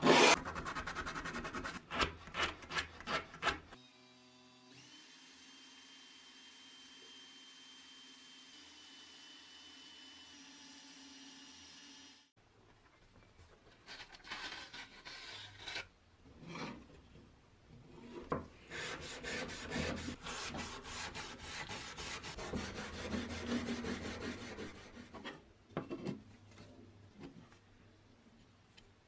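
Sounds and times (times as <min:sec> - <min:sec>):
abrasive pad scrubbing wood: 0:18.7 - 0:25.1.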